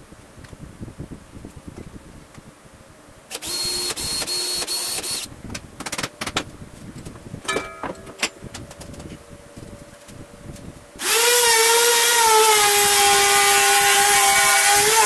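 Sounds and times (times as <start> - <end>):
cordless drill drilling acrylic: 3.3 - 5.3, 11.0 - 15.0
tools clattering on bench: 7.4 - 8.4.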